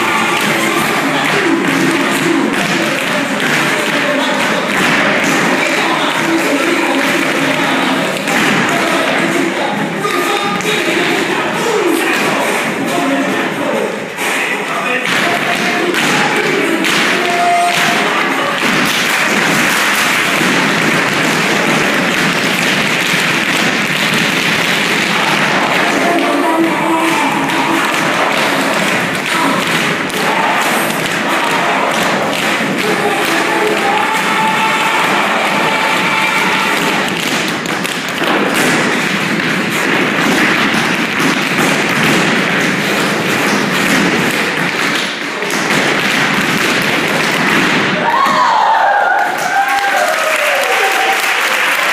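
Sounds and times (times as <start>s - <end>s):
tap shoes clattering on floor: 18.6s - 48.4s.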